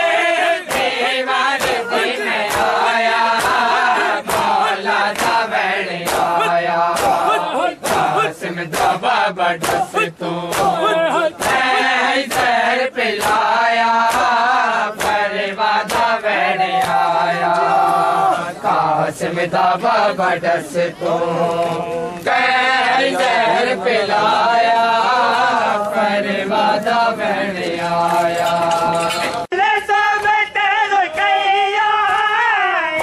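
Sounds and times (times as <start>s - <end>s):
men chanting together: 0.0s - 33.0s
hands slapping chests: 0.7s - 9.0s, 9.6s - 12.6s, 13.2s - 18.0s.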